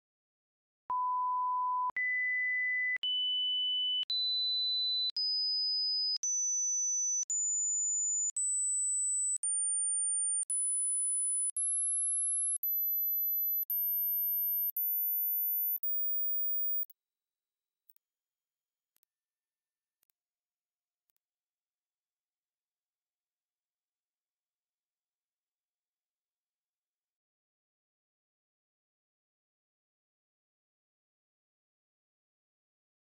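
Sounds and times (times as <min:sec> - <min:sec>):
sine-wave test tone beeps: 0:00.9 - 0:16.9.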